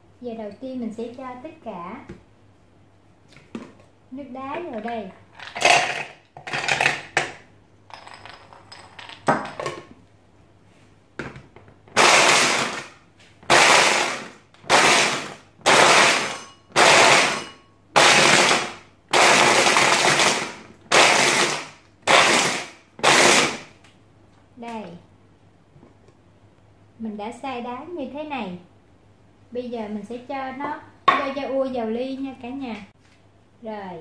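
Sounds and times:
ice cubes and plastic clattering: 0:05.4 - 0:07.2
electric chopper crushing ice: 0:12.0 - 0:23.7.

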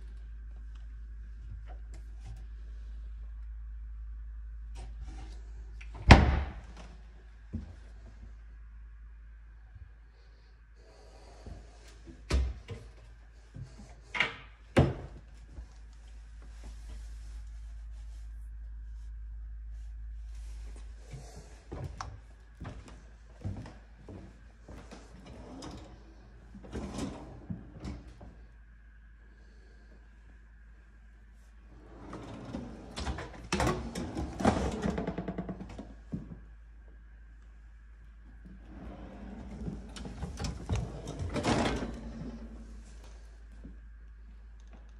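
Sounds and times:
drawer sliding shut: 0:38.8 - 0:42.4.

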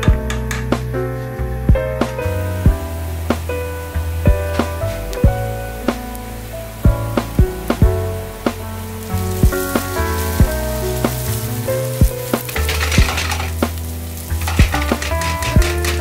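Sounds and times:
onion sizzling in oil: 0:00.0 - 0:16.0
spatula scraping frying pan: 0:12.3 - 0:16.0.

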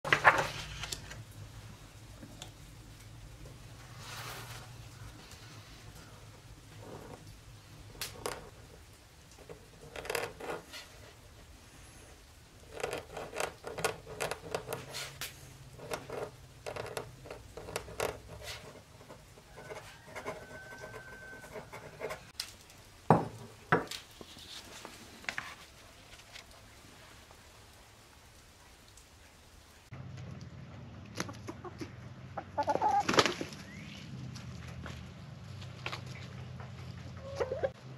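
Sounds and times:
pen nib scratching paper: 0:12.6 - 0:15.2, 0:15.8 - 0:22.3.

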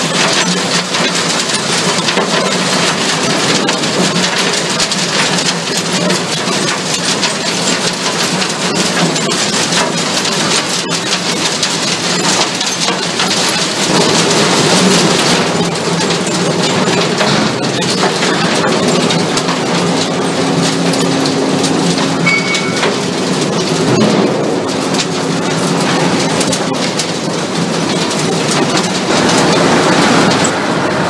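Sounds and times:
stone and rubble rattling on screen: 0:00.0 - 0:30.7
steady machine hum: 0:13.6 - 0:31.0.

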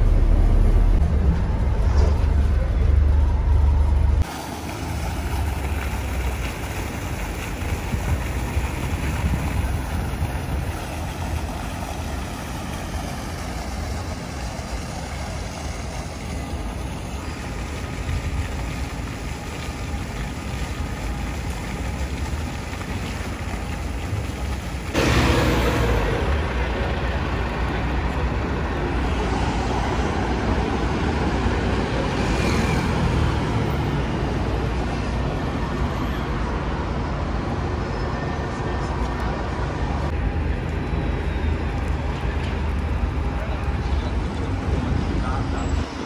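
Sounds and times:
street traffic: 0:00.0 - 0:46.0
wind on microphone: 0:07.6 - 0:11.2.

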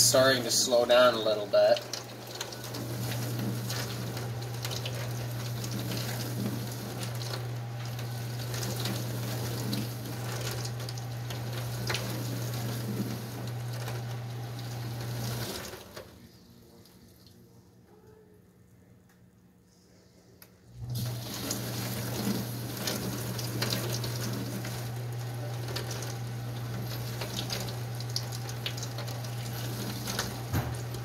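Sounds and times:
water spraying inside dishwasher: 0:00.0 - 0:17.3, 0:20.8 - 0:31.0
dishwasher pump hum: 0:00.0 - 0:18.2, 0:20.7 - 0:31.0.

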